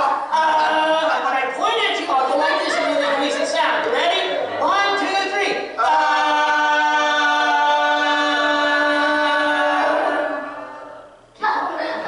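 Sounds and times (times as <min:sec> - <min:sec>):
people yelling a long note: 0:05.8 - 0:11.1.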